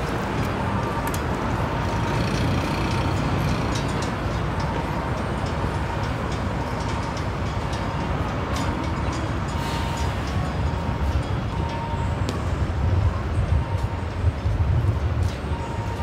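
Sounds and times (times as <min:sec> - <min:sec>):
traffic rumble: 0:00.0 - 0:16.0.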